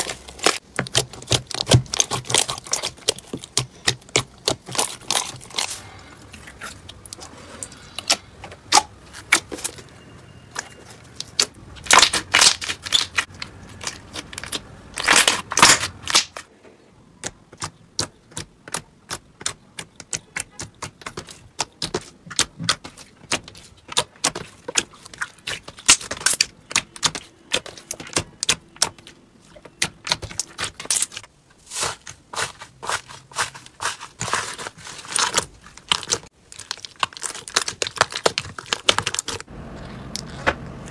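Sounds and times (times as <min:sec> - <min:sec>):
slime crackling and popping: 0:00.0 - 0:05.8, 0:11.2 - 0:16.4, 0:18.7 - 0:29.0, 0:33.8 - 0:39.5.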